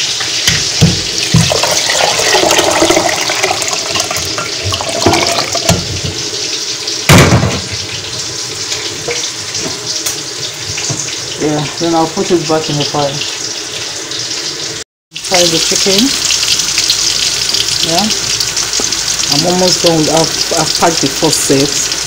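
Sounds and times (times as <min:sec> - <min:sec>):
stock pouring into metal pot: 0:01.3 - 0:05.9
sharp clunk: 0:07.1 - 0:07.8.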